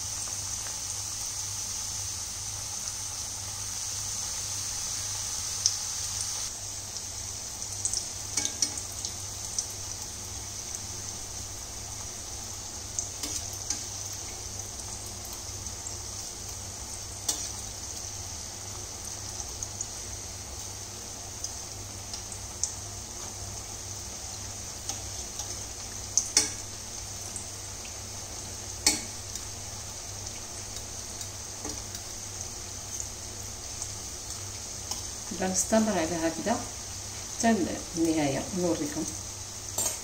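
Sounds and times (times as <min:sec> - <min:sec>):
food sizzling in hot oil: 0:00.0 - 0:40.0
fork clicking against pan: 0:26.2 - 0:26.6, 0:28.8 - 0:29.4.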